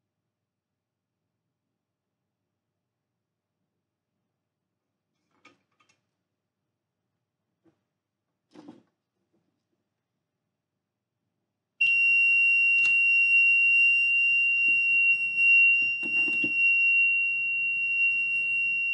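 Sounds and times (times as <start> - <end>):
piezo buzzer high-pitched tone: 11.8 - 18.9.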